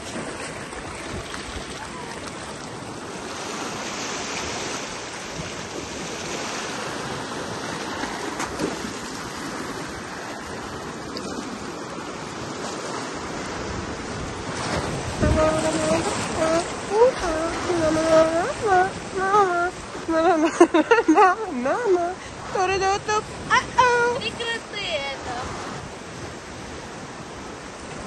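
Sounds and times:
surf washing over rocks: 0:00.0 - 0:28.0.

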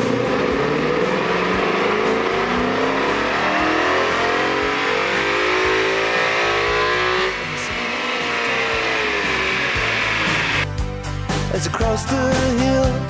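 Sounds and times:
car engine revving on dyno: 0:00.0 - 0:10.7
rock song playing: 0:00.0 - 0:13.0.

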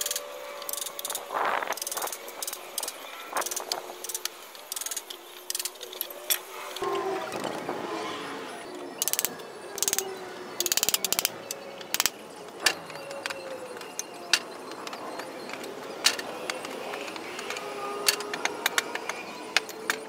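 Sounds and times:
rattling bursts of rapid clicks: 0:00.0 - 0:06.8, 0:09.0 - 0:12.6
faint wavering squeaks: 0:00.0 - 0:20.0.

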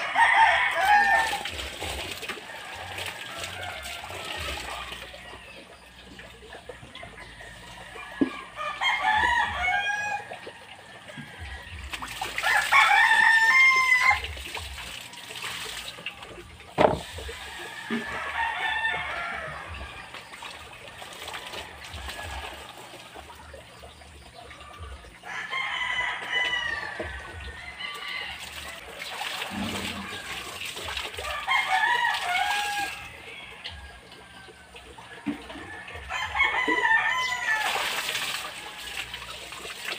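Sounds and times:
roosters crowing: 0:00.0 - 0:05.9, 0:06.8 - 0:14.4, 0:16.8 - 0:20.1, 0:25.0 - 0:39.2.

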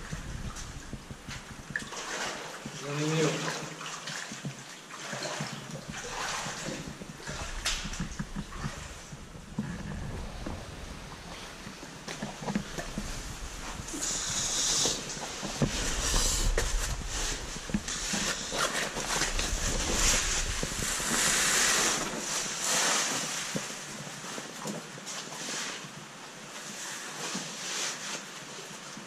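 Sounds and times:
rushing water hiss: 0:10.1 - 0:24.3.

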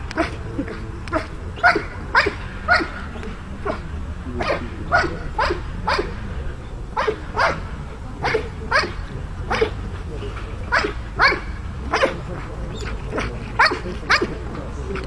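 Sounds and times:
dog barking: 0:01.1 - 0:03.8, 0:04.4 - 0:06.2, 0:07.0 - 0:09.8, 0:10.7 - 0:14.4.

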